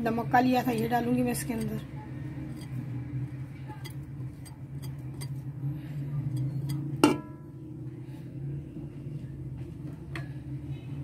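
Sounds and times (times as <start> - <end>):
steady low hum: 0.0 - 11.0
metal utensil striking a pot: 6.3 - 7.4.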